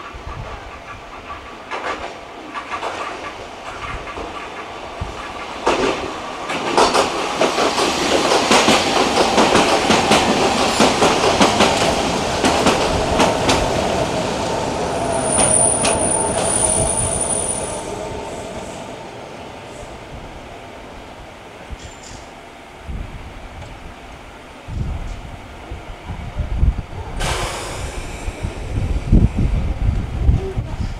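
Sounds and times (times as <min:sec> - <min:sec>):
train wheel clatter over rail joints: 0:01.3 - 0:13.8
high wheel squeal: 0:15.0 - 0:18.0.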